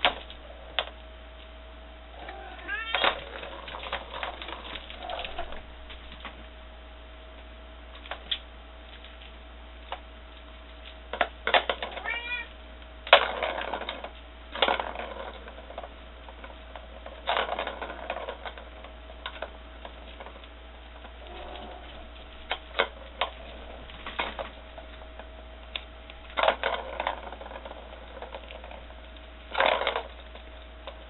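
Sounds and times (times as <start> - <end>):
kitten meowing: 2.2 - 3.1, 12.0 - 12.5
ball rattling around plastic track: 2.2 - 6.4, 10.7 - 31.0.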